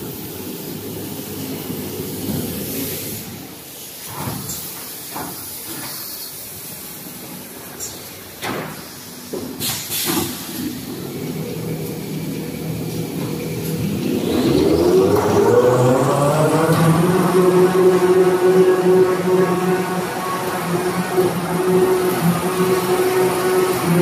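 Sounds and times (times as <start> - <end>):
machine hum: 10.9 - 24.0
rising drive whine: 11.5 - 24.0.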